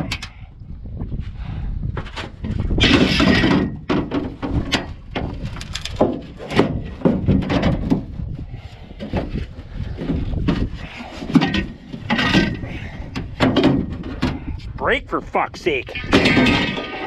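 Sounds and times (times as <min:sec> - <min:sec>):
metal bars clanking in boat: 0:10.4 - 0:14.5.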